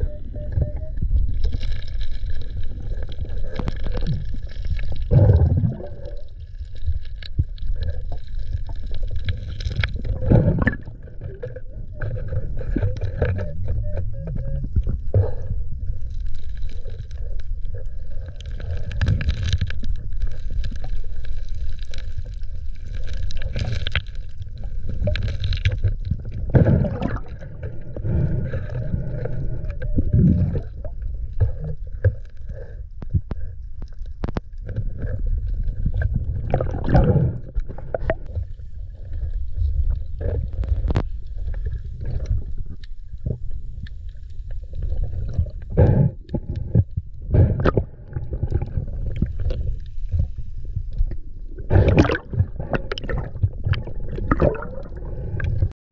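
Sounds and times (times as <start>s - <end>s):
underwater rumble of moving water: 0.0s - 55.7s
surges of water noise: 15.8s - 31.8s, 47.4s - 55.7s.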